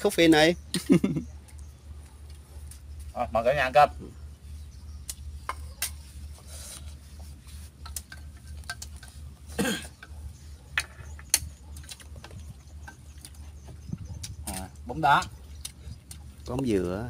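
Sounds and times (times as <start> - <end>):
steady low hum: 0.0 - 17.0
chopsticks clicking on steel bowls: 7.8 - 9.2.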